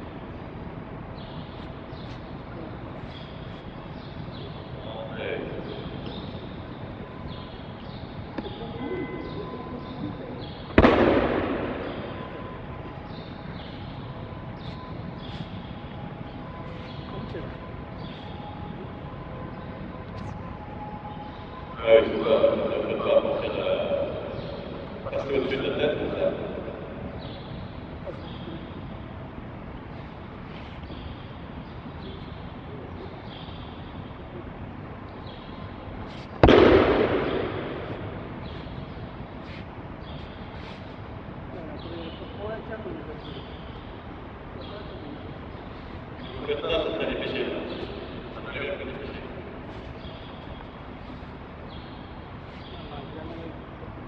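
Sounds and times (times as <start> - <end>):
faint hum: 0.0 - 54.0
heavy thud echoing in hall: 10.8 - 13.7, 36.4 - 38.9.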